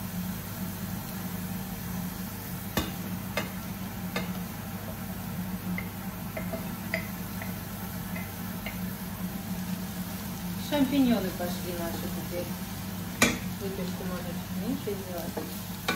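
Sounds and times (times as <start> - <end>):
range hood fan humming: 0.0 - 15.9
utensils clicking and tapping: 5.8 - 8.8.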